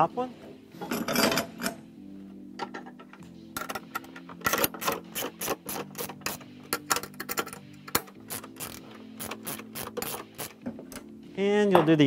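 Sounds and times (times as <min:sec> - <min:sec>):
ratchet wrench clicking: 0:04.4 - 0:10.6.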